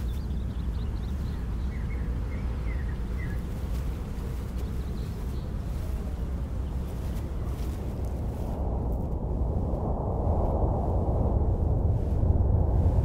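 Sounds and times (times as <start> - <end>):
faint bird chirps: 0.0 - 7.1
low rumbling ambience: 0.0 - 13.0.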